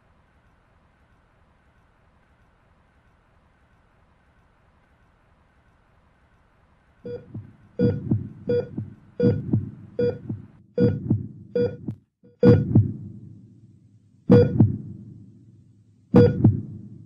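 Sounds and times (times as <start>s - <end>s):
patient monitor short beeps: 7.1s - 10.2s, 10.8s - 11.0s, 11.6s - 11.8s, 12.4s - 12.7s, 14.3s - 14.6s, 16.2s - 16.5s
heartbeat thumps: 7.1s - 13.3s, 14.3s - 15.2s, 16.1s - 17.0s.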